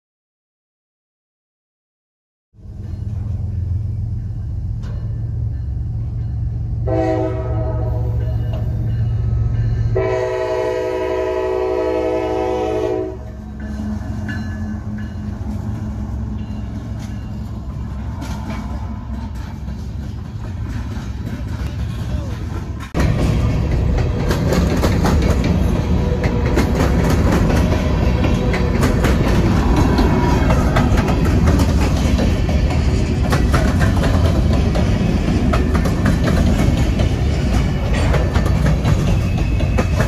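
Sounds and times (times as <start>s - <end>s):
diesel locomotive engine drone: 2.6s - 40.0s
train air horn blasts: 6.8s - 8.4s, 9.9s - 13.4s
wheels clicking on rails: 13.2s - 40.0s.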